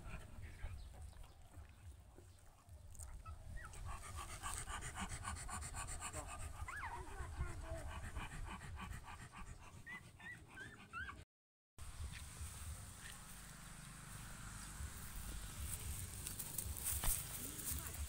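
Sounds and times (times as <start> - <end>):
puppies panting: 0.0 - 11.3
puppies squeaking: 9.9 - 11.2.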